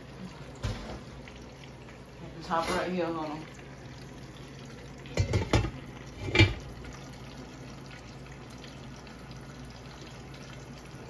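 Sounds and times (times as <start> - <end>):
chicken sizzling in oil: 0.0 - 11.0
glass lid clanking onto skillet: 5.2 - 6.6.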